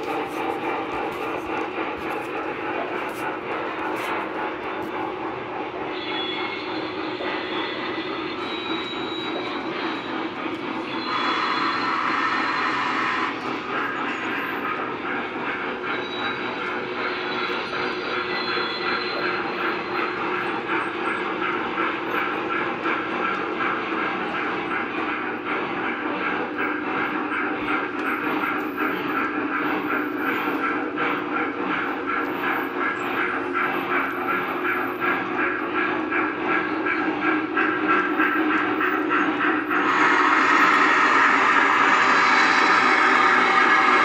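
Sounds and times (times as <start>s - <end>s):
model train motors whirring: 0.0s - 44.0s
fast rhythmic clicking: 13.3s - 39.8s.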